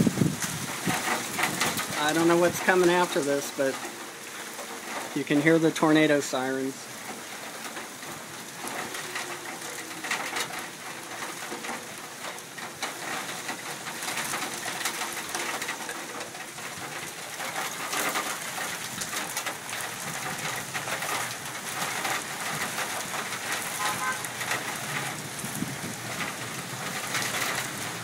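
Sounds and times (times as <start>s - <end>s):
wind gusting on microphone: 0.0s - 6.1s, 16.5s - 28.0s
rain: 0.0s - 28.0s
warning siren wailing: 23.7s - 24.4s.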